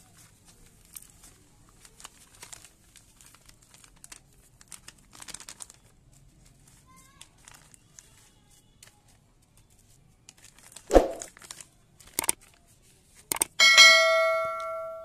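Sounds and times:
seed packets rustling and crinkling: 0:00.0 - 0:13.3
sharp clicks: 0:12.2 - 0:12.4, 0:13.3 - 0:13.6
ringing bell chime: 0:13.6 - 0:15.0.

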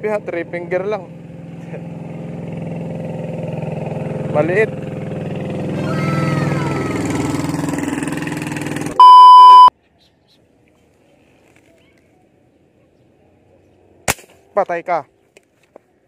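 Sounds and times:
boat engine: 0:00.0 - 0:09.7
electronic beep: 0:09.0 - 0:09.7
airgun shot: 0:14.1 - 0:14.4.

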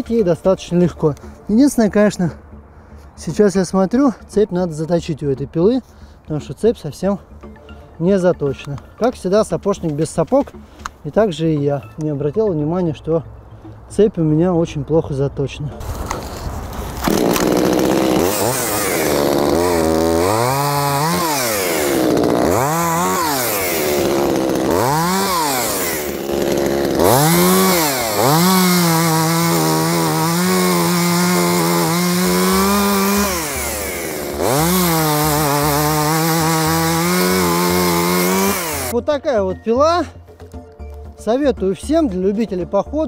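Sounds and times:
chainsaw engine revving: 0:16.1 - 0:39.0.

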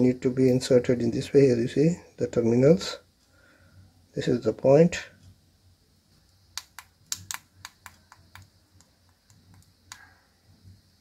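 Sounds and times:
plastic clicks and taps: 0:06.6 - 0:10.0.

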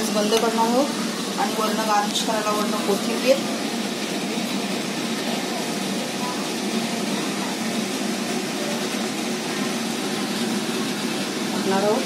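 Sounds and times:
machine humming: 0:00.0 - 0:12.0.

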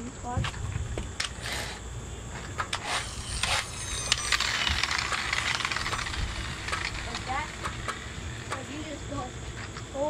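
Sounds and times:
plastic toy trucks clicking: 0:02.6 - 0:08.7.

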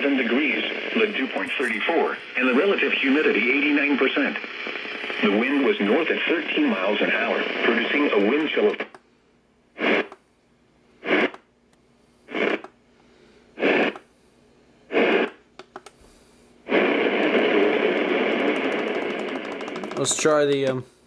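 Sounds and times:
radio broadcast: 0:00.0 - 0:08.9, 0:09.8 - 0:10.1, 0:11.0 - 0:11.3, 0:12.3 - 0:12.6, 0:13.6 - 0:14.0, 0:14.9 - 0:15.4, 0:16.7 - 0:20.8
radio static bursts: 0:00.0 - 0:08.9, 0:09.8 - 0:10.2, 0:11.0 - 0:11.4, 0:12.3 - 0:12.7, 0:13.6 - 0:14.0, 0:14.9 - 0:15.4, 0:16.7 - 0:20.6.

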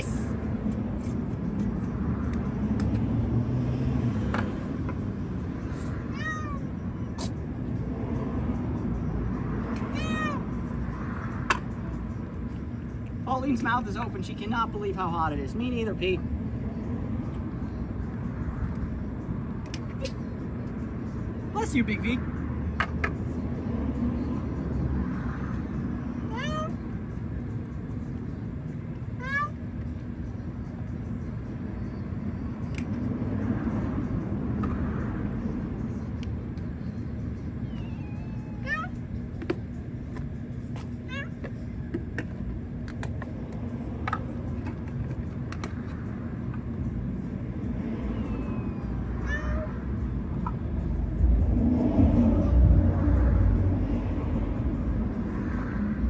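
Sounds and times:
cat meowing: 0:06.0 - 0:06.7, 0:09.8 - 0:10.4, 0:26.2 - 0:26.8, 0:29.2 - 0:29.6, 0:37.6 - 0:39.0, 0:41.1 - 0:41.4, 0:48.2 - 0:49.8
low background rumble: 0:35.1 - 0:56.0.

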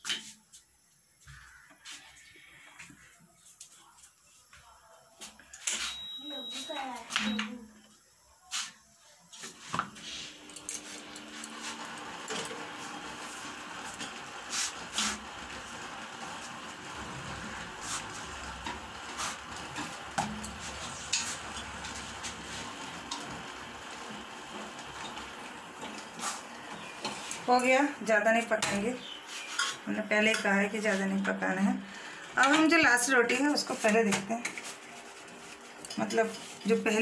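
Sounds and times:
gas burner hissing: 0:09.6 - 0:33.8.

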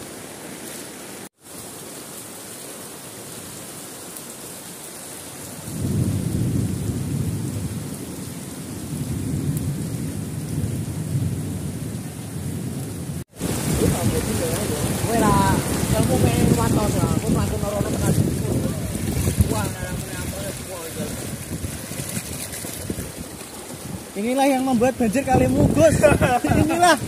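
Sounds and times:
rain and floodwater hissing: 0:00.0 - 0:27.0.

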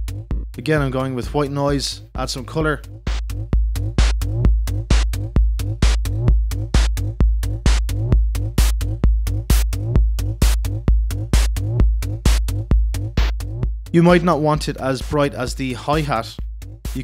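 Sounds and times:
deep kick drum: 0:00.0 - 0:14.3
electronic hi-hat: 0:02.3 - 0:13.7.

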